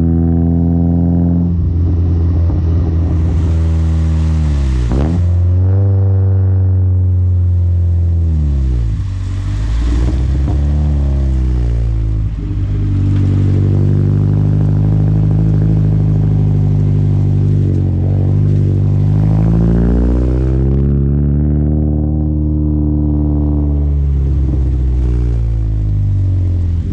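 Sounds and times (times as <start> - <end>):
car exhaust engine drone: 0.0 - 26.9
exhaust crackles: 0.0 - 26.9.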